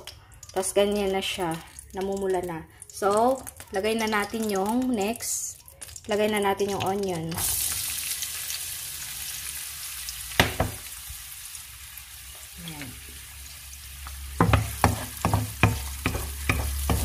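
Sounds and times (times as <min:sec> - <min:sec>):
onion sizzling in hot oil: 0:00.0 - 0:17.0
wooden spoon knocking against pan: 0:10.4 - 0:10.8, 0:14.4 - 0:17.0.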